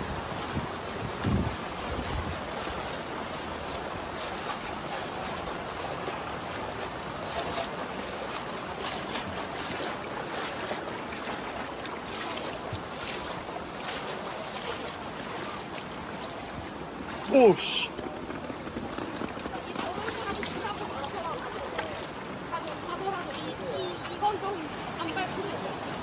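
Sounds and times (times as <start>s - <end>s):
wind on microphone: 0.0s - 2.8s
floodwater rushing: 0.0s - 26.0s.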